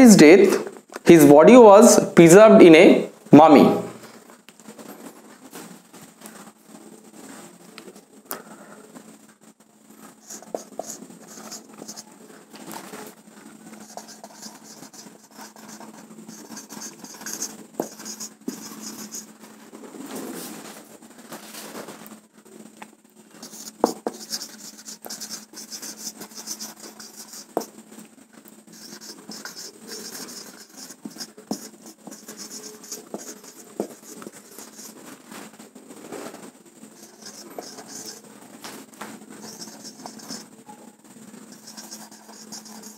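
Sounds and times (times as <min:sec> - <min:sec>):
faint steady hum: 0:05.4 - 0:42.9
marker squeaking on whiteboard: 0:10.2 - 0:12.1, 0:13.8 - 0:19.3, 0:23.4 - 0:27.7, 0:28.7 - 0:35.0, 0:37.0 - 0:38.2, 0:39.4 - 0:40.8, 0:41.5 - 0:42.9.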